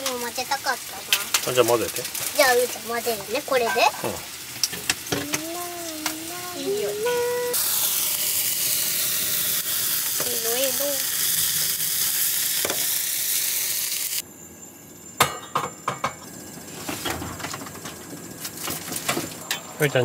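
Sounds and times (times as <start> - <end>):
scallops sizzling in a pan: 0.0 - 14.2.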